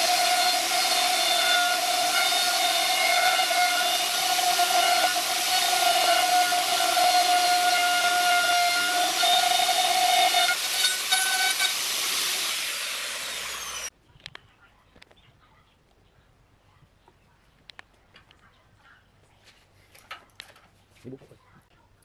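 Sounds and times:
electric router whining: 0:00.0 - 0:13.9.

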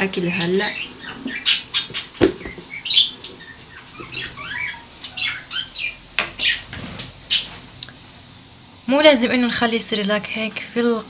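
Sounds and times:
hamster squeaky chirps: 0:00.6 - 0:06.7.

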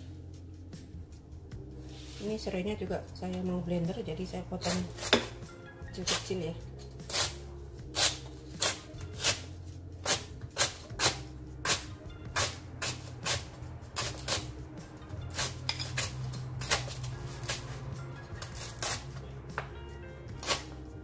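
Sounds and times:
knife chopping on cutting board: 0:04.6 - 0:05.4, 0:07.1 - 0:14.5.

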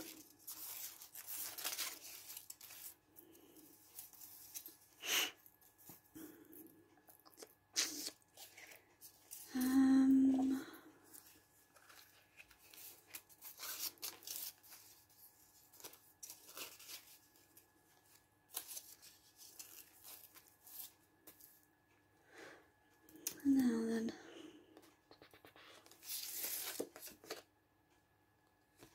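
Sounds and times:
foil and paper crinkling: 0:00.0 - 0:04.9, 0:11.1 - 0:21.4, 0:25.1 - 0:27.4
person humming: 0:09.5 - 0:10.9, 0:23.2 - 0:24.3.

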